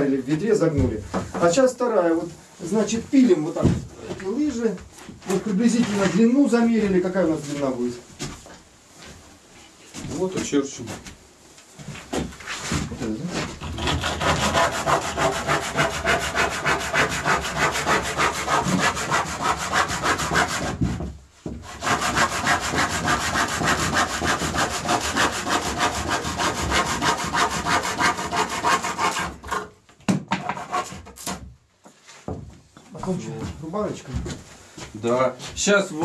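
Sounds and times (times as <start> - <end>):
hand saw cutting wood: 13.3 - 21.0, 21.6 - 29.7, 30.4 - 31.4.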